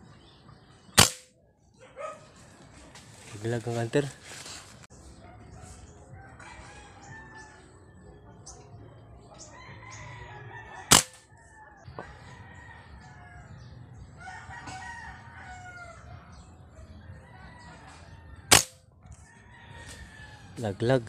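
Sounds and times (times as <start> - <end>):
rifle shots: 1.0 - 1.3, 10.9 - 11.2, 18.5 - 18.8
rooster crowing: 5.4 - 7.6, 9.6 - 13.6, 14.2 - 16.1, 17.0 - 18.5, 19.3 - 20.6.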